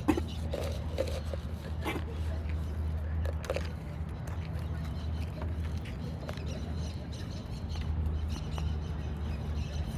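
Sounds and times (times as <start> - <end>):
deer crunching food: 0.0 - 4.6.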